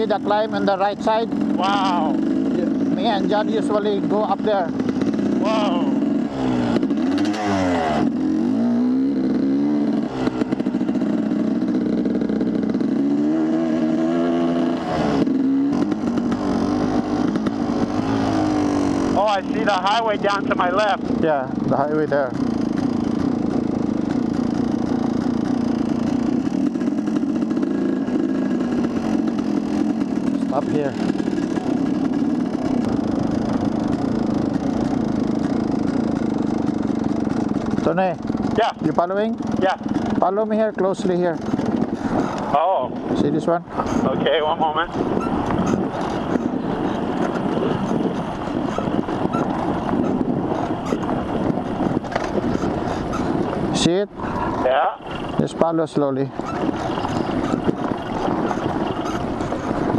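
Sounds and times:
dirt bike engine running: 0.0s - 59.9s
wind buffeting microphone: 12.4s - 59.9s.

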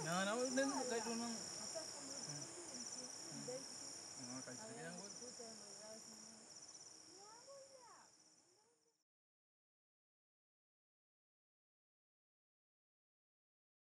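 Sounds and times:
night insects chirring: 0.0s - 9.0s.

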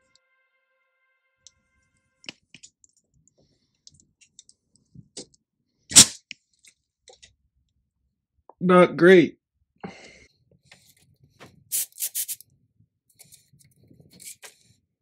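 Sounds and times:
compressed air blast: 11.7s - 12.4s.

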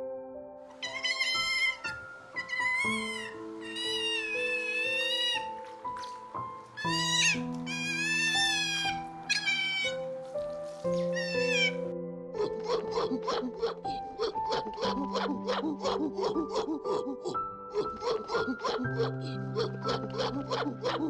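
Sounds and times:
soft background music: 0.0s - 21.0s
otters squealing: 0.7s - 21.0s.

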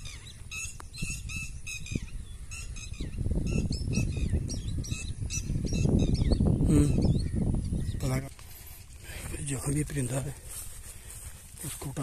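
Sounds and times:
birds calling: 0.0s - 12.0s.

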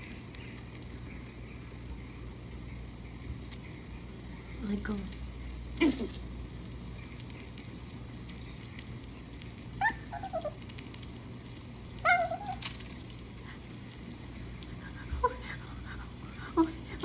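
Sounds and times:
puppy whining: 9.7s - 10.8s, 12.0s - 12.9s, 14.7s - 17.0s.

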